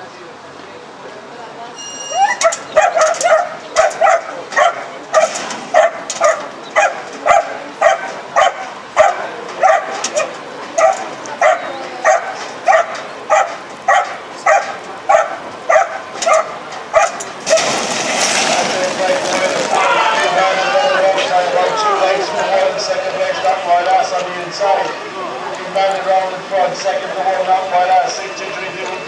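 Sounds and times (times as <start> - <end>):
greyhound barking: 2.2 - 17.7.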